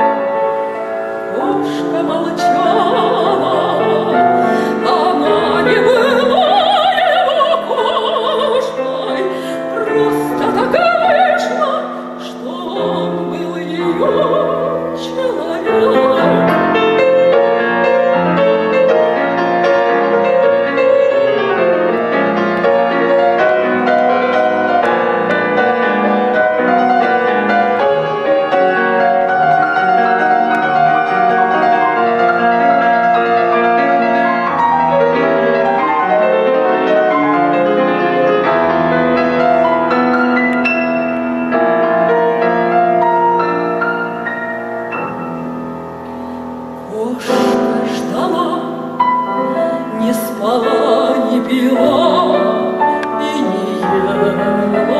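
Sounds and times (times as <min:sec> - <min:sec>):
grand piano: 0:00.0 - 0:54.9
woman singing operatically: 0:01.3 - 0:17.2, 0:46.9 - 0:54.9.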